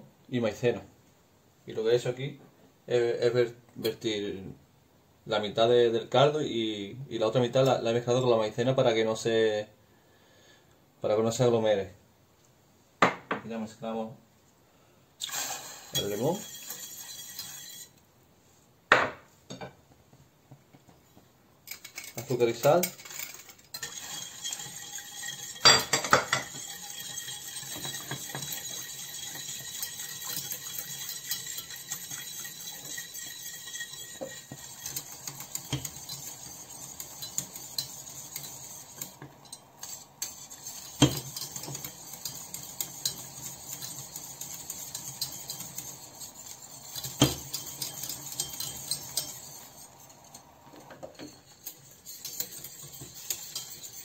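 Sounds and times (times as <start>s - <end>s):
whisk scraping a saucepan: 15.2s - 18.0s, 21.7s - 54.0s
whisk knocking against pan: 23.8s - 50.0s, 51.2s - 54.0s.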